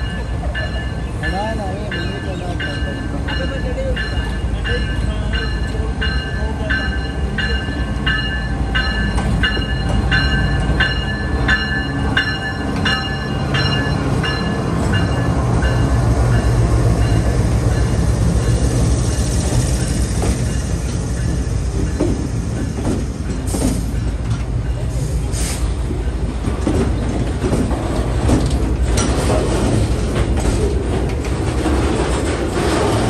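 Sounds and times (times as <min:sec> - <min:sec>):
freight train wagons rumbling: 0:00.0 - 0:33.0
hiss: 0:25.0 - 0:25.7.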